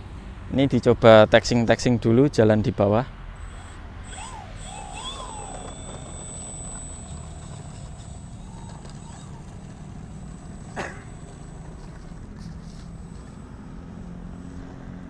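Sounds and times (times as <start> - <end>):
electric propeller whine: 3.2 - 15.0.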